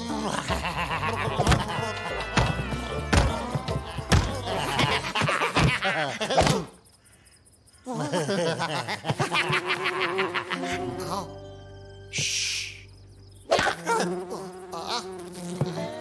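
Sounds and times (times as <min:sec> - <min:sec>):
cartoon characters screeching and babbling: 0:01.3 - 0:06.6
thuds and whacks on wooden floor: 0:02.4 - 0:05.0.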